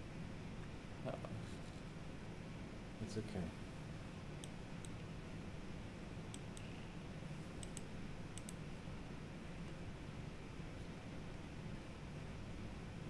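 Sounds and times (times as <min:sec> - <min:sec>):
steady low hum: 0:00.0 - 0:13.0
computer mouse clicks: 0:06.3 - 0:06.7, 0:07.6 - 0:08.6.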